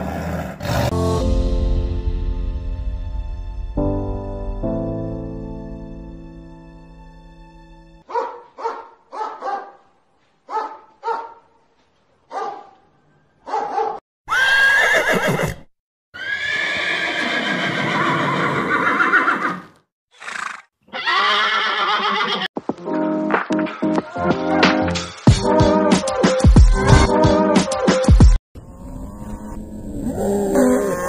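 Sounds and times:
horses neighing: 14.3s - 22.5s.

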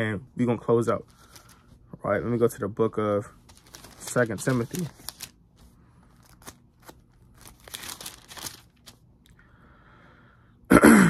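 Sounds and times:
paper pages rustling: 1.0s - 1.8s, 3.4s - 9.0s.

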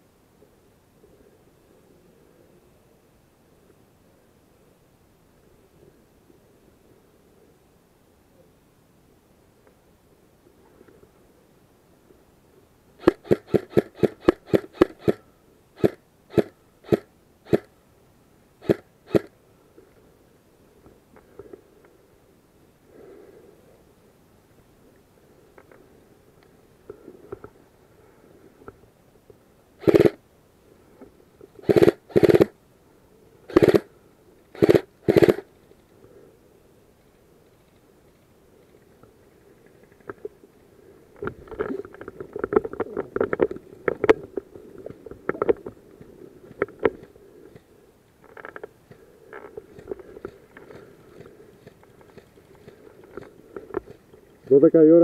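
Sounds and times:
airsoft rifle shots: 13.0s - 15.2s, 15.8s - 17.7s, 18.6s - 19.3s, 29.8s - 30.2s, 31.6s - 32.5s, 33.5s - 33.9s, 34.6s - 35.5s.

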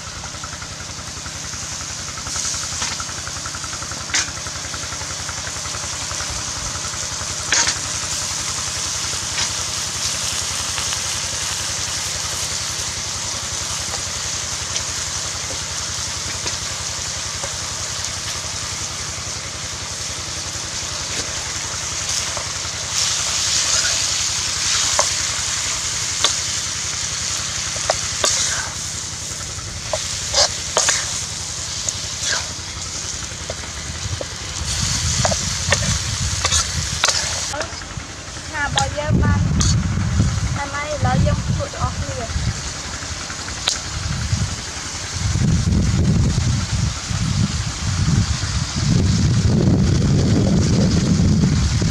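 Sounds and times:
food sizzling in a wok: 0.0s - 51.9s
metal spatula scraping pan: 27.8s - 28.8s, 29.9s - 31.2s, 32.2s - 32.6s, 34.8s - 37.7s.

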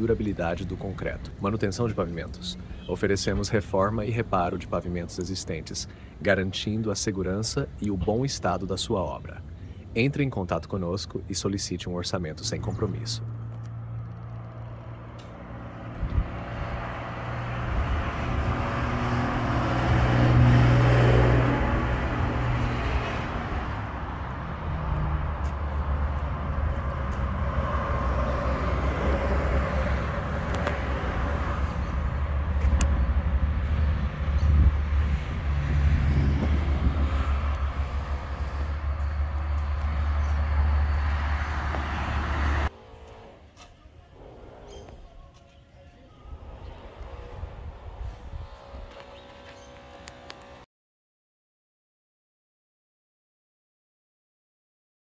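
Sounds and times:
vehicle engine running: 21.4s - 43.6s, 46.3s - 50.6s
low outdoor rumble: 21.5s - 50.6s.

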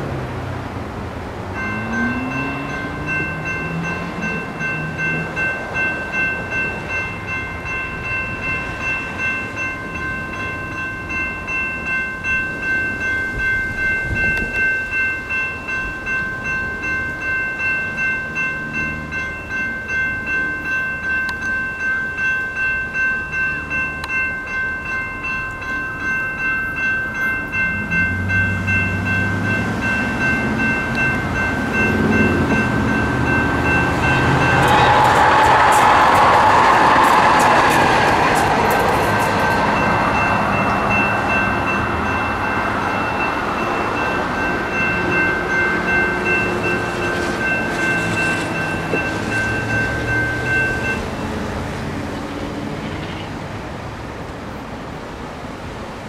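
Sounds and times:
electronic crossing bell ringing: 1.5s - 52.3s.

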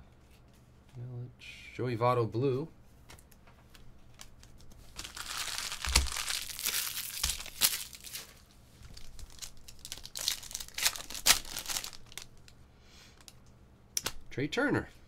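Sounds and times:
wrapper crinkling and tearing: 4.1s - 12.6s.

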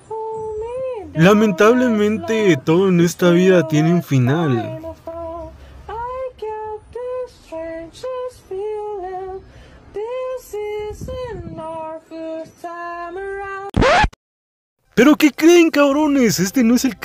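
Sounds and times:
high voice singing slow melody: 0.0s - 7.9s.

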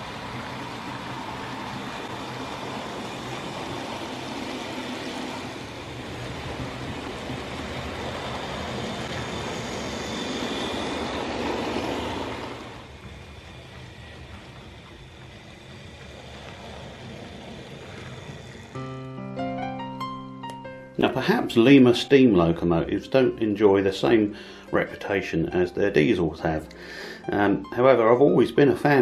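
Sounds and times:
model train motor whirring: 0.0s - 19.2s
wheels on rails: 0.0s - 20.2s.

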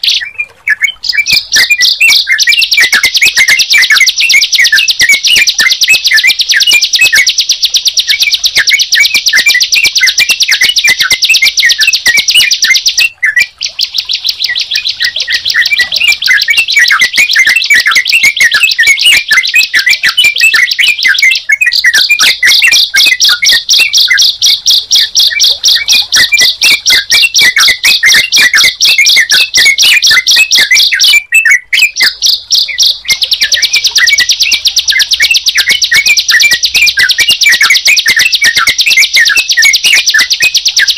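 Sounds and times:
bird chirps: 0.0s - 40.9s
bird high-pitched trill: 0.0s - 40.9s.

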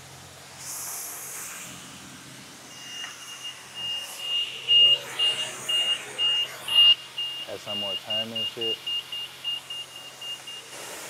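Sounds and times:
high-pitched electronic beeping: 2.7s - 11.0s.

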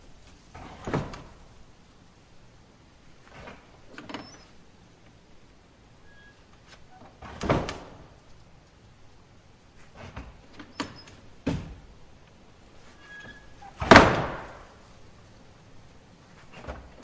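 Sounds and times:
screen door slamming shut: 0.5s - 1.5s, 6.1s - 8.2s, 9.9s - 11.9s, 13.0s - 14.8s
faint door squeak: 4.1s - 4.6s, 6.0s - 7.5s, 10.7s - 11.2s, 12.9s - 13.8s.

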